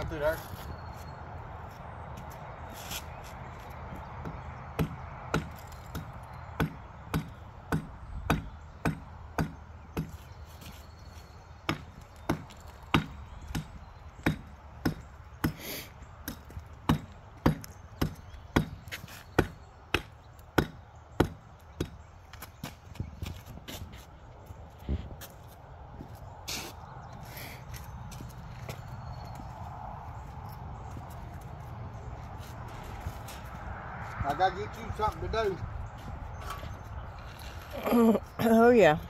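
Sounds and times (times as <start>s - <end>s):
hammer striking concrete: 4.2s - 10.1s, 11.7s - 15.6s, 16.2s - 18.8s, 19.4s - 22.0s.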